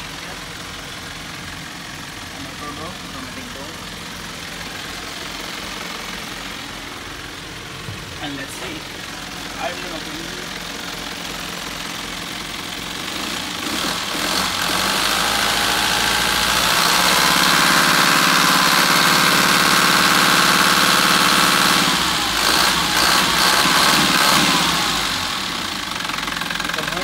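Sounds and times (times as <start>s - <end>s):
diesel engine idling: 0.0s - 27.0s
engine knocks: 4.6s - 9.4s.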